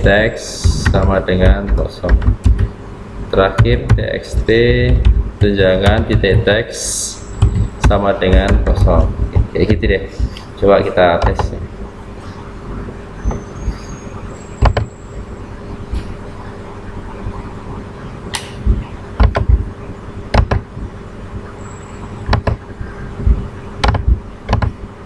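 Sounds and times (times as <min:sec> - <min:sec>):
steady low hum: 0:00.0 - 0:25.0
keyboard clicks: 0:00.6 - 0:02.7, 0:03.6 - 0:06.5, 0:11.2 - 0:11.6, 0:18.4 - 0:19.6, 0:22.3 - 0:22.6, 0:23.3 - 0:24.8.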